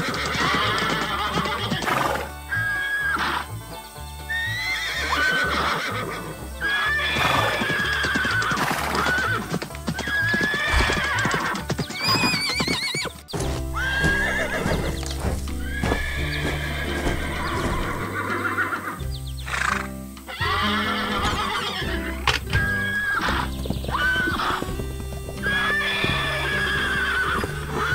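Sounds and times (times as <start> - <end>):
horses whinnying: 0.0 - 3.5, 4.3 - 27.9
hooves clip-clopping: 0.0 - 27.9.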